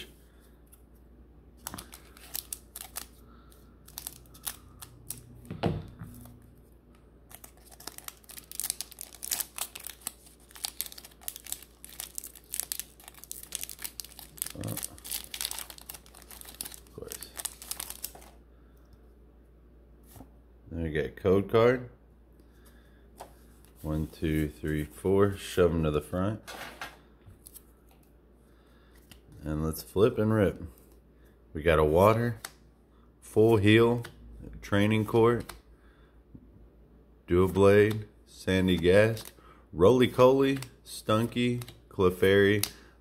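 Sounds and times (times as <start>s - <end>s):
foil wrapper crinkling and tearing: 1.6s - 3.2s, 3.8s - 5.3s, 7.3s - 18.4s.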